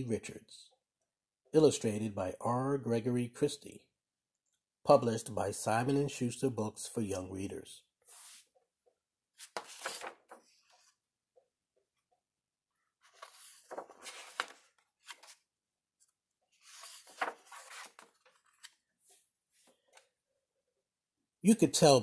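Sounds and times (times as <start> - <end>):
book pages turning: 8.0 - 8.6, 9.4 - 11.0, 13.0 - 20.1.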